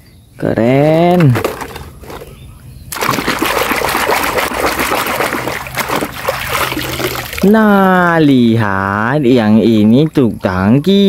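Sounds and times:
water splashing in a basin: 0:01.1 - 0:02.3, 0:02.9 - 0:07.6
toy truck scrubbed in water: 0:03.0 - 0:07.4.

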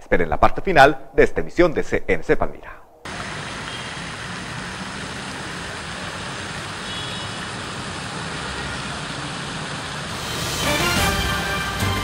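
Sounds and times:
distant road traffic: 0:03.0 - 0:12.0.

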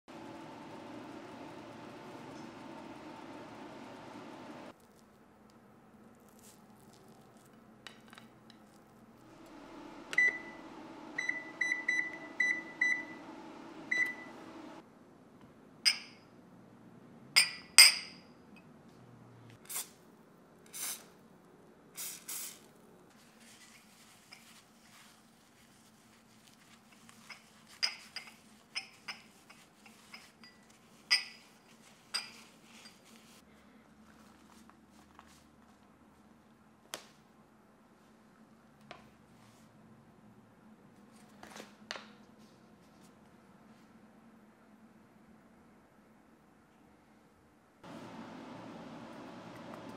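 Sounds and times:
oven low hum: 0:00.1 - 0:04.7, 0:09.2 - 0:14.8, 0:47.8 - 0:49.9
oven control panel beeps: 0:10.0 - 0:14.8.

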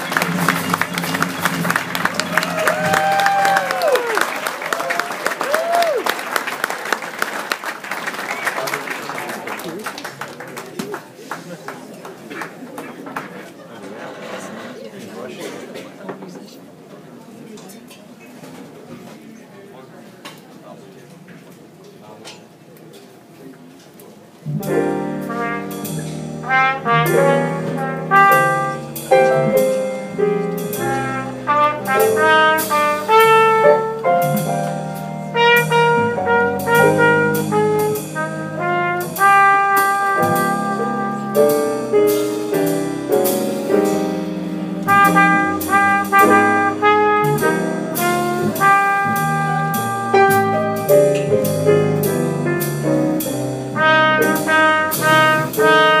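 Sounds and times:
trumpet melody: 0:24.5 - 0:56.0.

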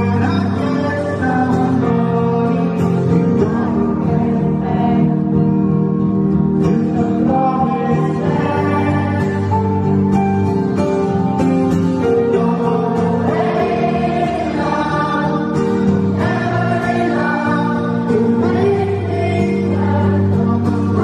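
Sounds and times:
man singing through a pa: 0:00.0 - 0:05.1, 0:06.8 - 0:09.7
acoustic guitar: 0:00.0 - 0:21.0.

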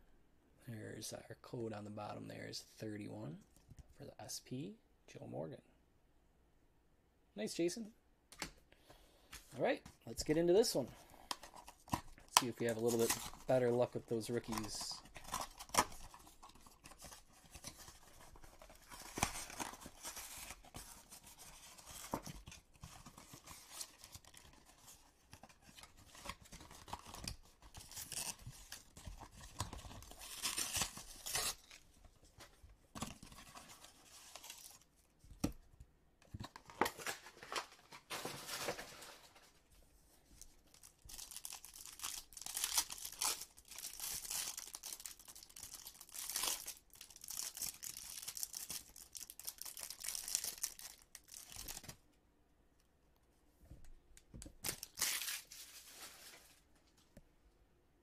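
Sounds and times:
wrapper tearing and crinkling: 0:11.7 - 0:31.8, 0:40.7 - 0:52.0, 0:54.6 - 0:56.4.

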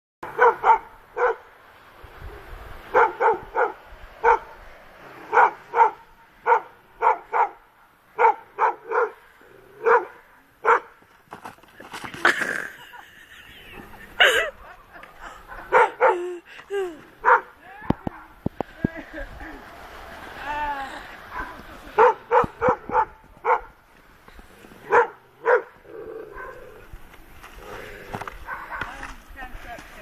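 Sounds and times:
dog barking: 0:00.2 - 0:01.5, 0:02.9 - 0:04.6, 0:05.3 - 0:09.2, 0:09.8 - 0:11.0, 0:15.5 - 0:16.2, 0:17.2 - 0:17.5, 0:21.3 - 0:23.8, 0:24.8 - 0:26.6, 0:28.4 - 0:29.0.

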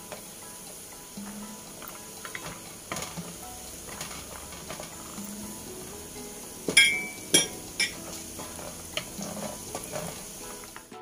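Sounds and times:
peanuts sizzling in hot oil: 0:00.0 - 0:11.0
spatula knocking on pot: 0:06.6 - 0:10.4.

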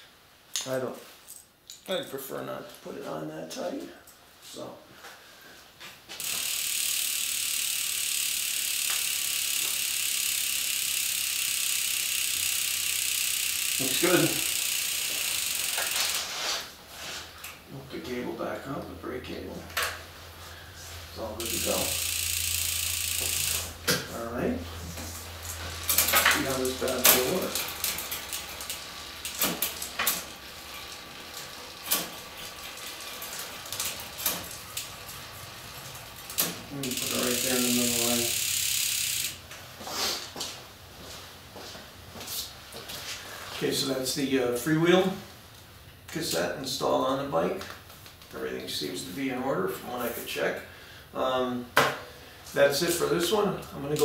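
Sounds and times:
bicycle freewheel ratcheting buzz: 0:06.2 - 0:16.5, 0:21.3 - 0:24.2, 0:24.9 - 0:39.8.

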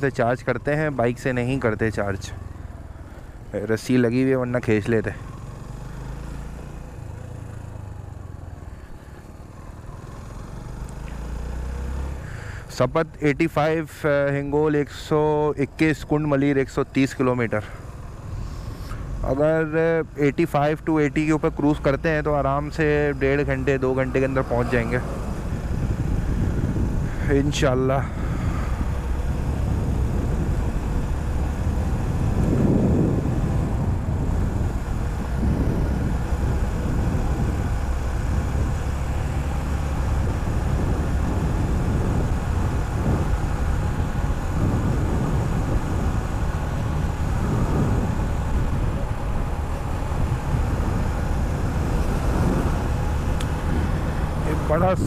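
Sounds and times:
motorcycle engine cruising: 0:00.0 - 0:55.0
wind on microphone: 0:23.7 - 0:39.0, 0:39.8 - 0:55.0.

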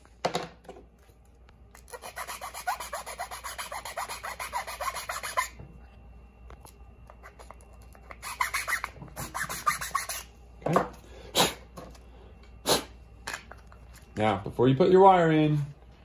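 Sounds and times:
file rasping on plastic: 0:01.9 - 0:05.5, 0:08.2 - 0:10.3.

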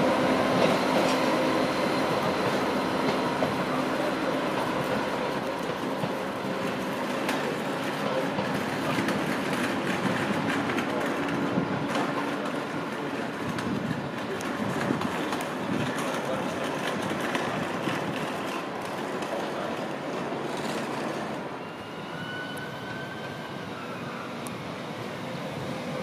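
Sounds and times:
diesel train engines humming: 0:00.0 - 0:14.8
train wheels clicking over rail joints: 0:00.2 - 0:21.4.

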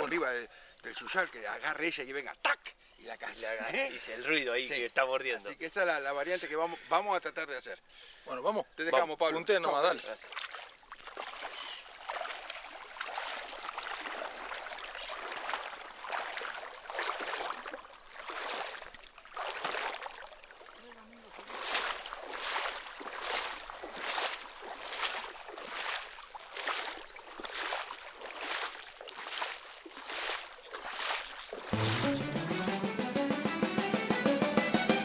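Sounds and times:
wading splashes in water: 0:10.1 - 0:32.5.

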